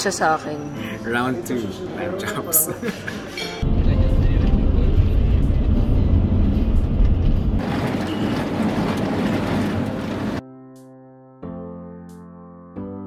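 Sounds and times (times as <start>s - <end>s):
piano music: 0.6s - 13.0s
vehicle rumble and road noise: 3.6s - 10.4s.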